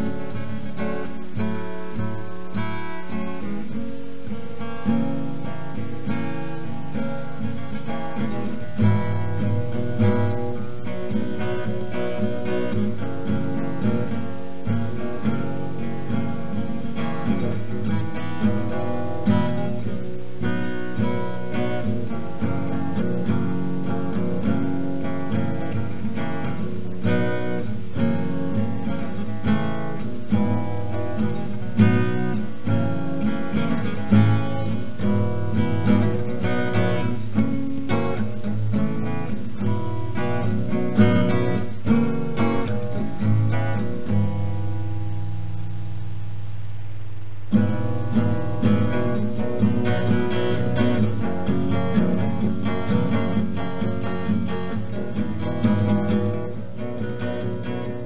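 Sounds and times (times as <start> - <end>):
acoustic guitar picked and strummed: 0.0 - 58.0.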